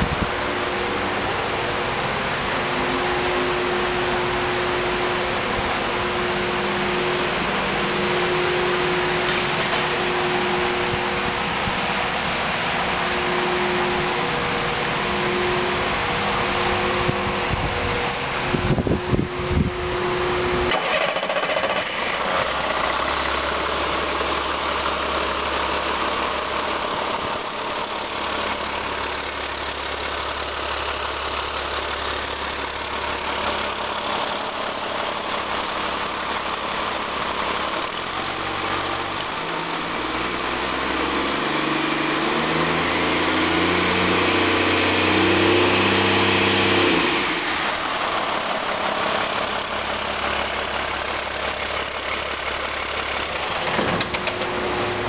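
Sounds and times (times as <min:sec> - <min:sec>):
diesel engine running: 0:00.0 - 0:55.0
engine knocks: 0:48.1 - 0:55.0.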